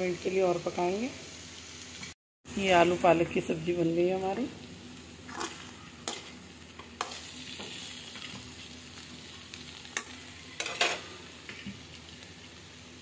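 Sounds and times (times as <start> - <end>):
curry sizzling softly: 0.0 - 13.0.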